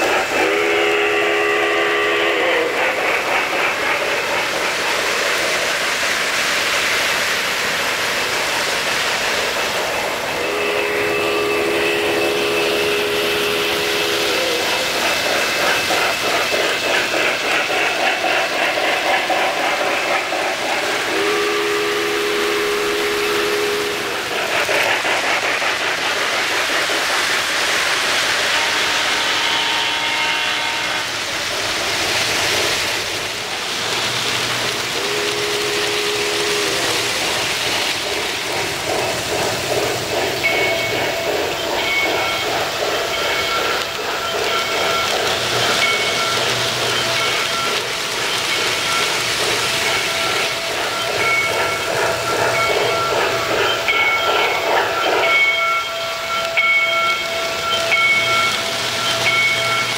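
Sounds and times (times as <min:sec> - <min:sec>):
steam whistle blasts: 0:00.0 - 0:02.9, 0:10.3 - 0:15.6, 0:20.8 - 0:24.2, 0:28.4 - 0:31.3, 0:34.9 - 0:37.4
steam hiss and chuff: 0:00.0 - 0:59.9
wheels rolling on track: 0:00.0 - 0:59.9.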